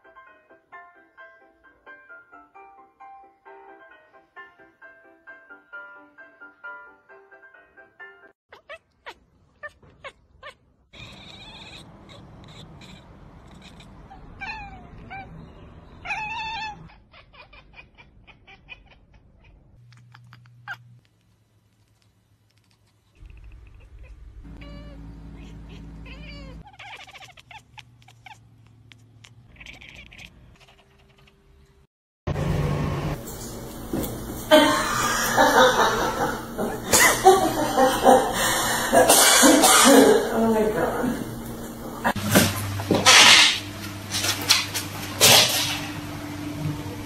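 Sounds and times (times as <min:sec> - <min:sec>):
cats meowing: 0:08.5 - 0:21.0, 0:23.3 - 0:31.4.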